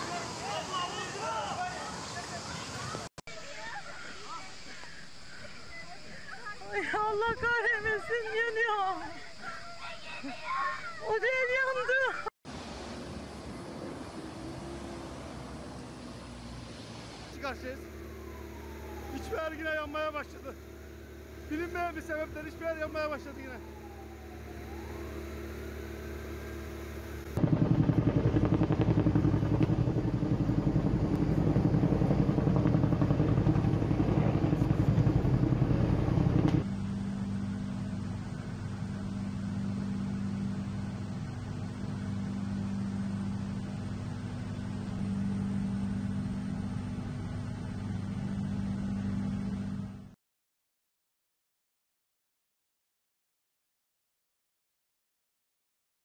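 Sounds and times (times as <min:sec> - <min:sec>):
aircraft engine: 0:23.6 - 0:50.2.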